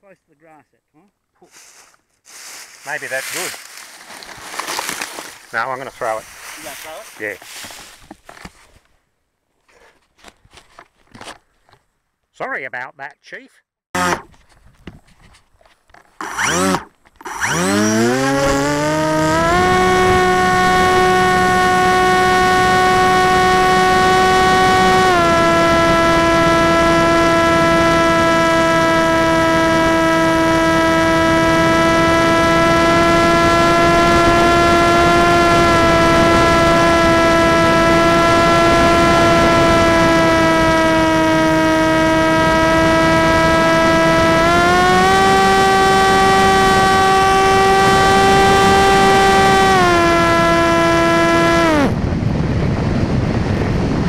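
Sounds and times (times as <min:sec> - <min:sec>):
electric motor and propeller whine: 0:14.0 - 0:14.3, 0:16.2 - 0:54.0.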